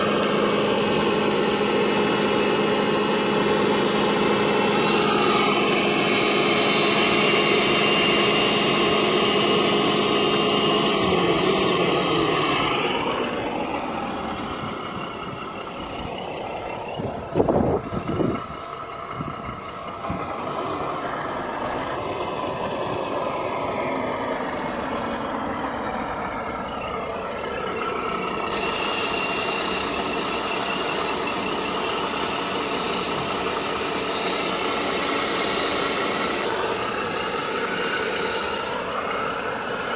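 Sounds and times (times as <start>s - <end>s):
electric servo whining: 0.0s - 18.3s, 28.1s - 39.9s.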